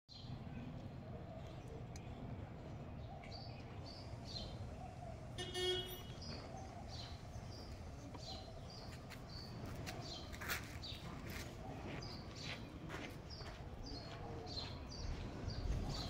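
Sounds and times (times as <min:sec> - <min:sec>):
distant traffic rumble: 0:00.1 - 0:16.0
small birds chirping: 0:00.1 - 0:16.0
vehicle horn toot: 0:05.4 - 0:06.3.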